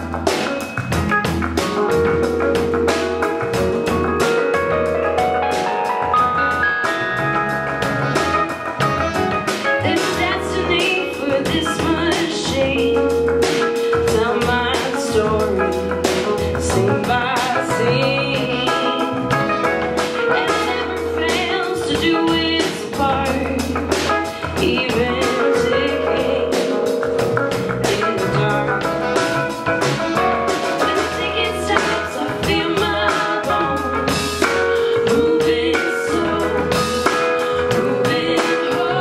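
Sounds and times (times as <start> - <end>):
live band playing: 0.0 - 39.0
woman singing: 9.8 - 29.4, 30.5 - 39.0.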